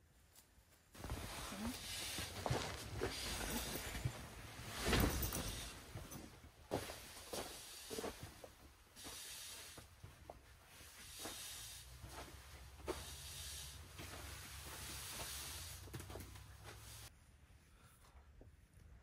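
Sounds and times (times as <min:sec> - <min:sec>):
nylon fabric rustling: 0:01.0 - 0:08.4
footsteps on crinkly plastic floor: 0:01.0 - 0:11.4, 0:13.9 - 0:17.0.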